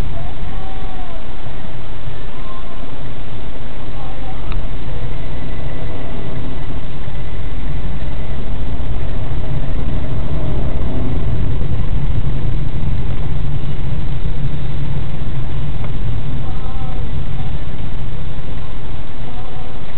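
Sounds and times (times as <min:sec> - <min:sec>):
car engine and road noise: 0:01.2 - 0:19.9.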